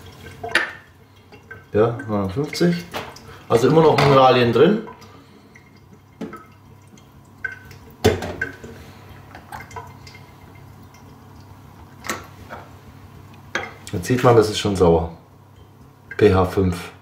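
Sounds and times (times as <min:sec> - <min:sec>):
plinking drips: 0:00.0 - 0:08.7, 0:15.4 - 0:16.4.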